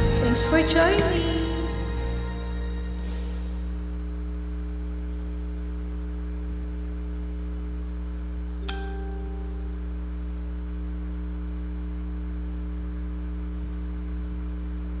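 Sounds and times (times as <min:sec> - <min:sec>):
electrical hum: 0:02.7 - 0:15.0
short ringing ping: 0:08.6 - 0:10.0.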